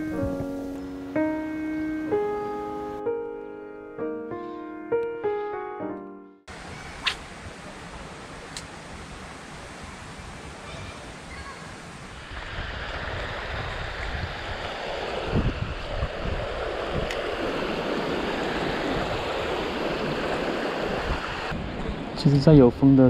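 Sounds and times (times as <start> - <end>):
stream rushing over rocks: 7.8 - 21.6
wind rumble on microphone: 12.0 - 22.8.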